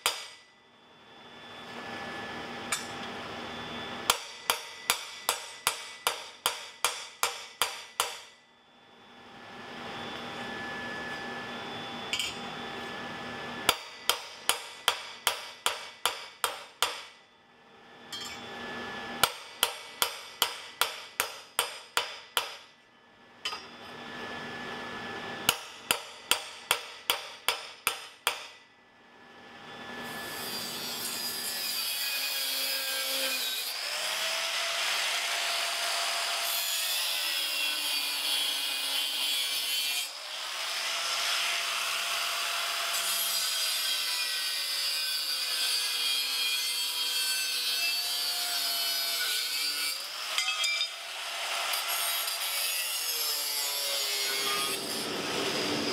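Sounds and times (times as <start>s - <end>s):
hammer striking steel: 0.0s - 0.5s, 2.7s - 3.0s, 4.0s - 8.4s, 12.1s - 12.4s, 13.7s - 17.2s, 18.1s - 18.5s, 19.2s - 22.8s, 23.4s - 23.7s, 25.5s - 28.6s, 50.4s - 51.0s
angle grinder cutting steel: 30.0s - 55.9s.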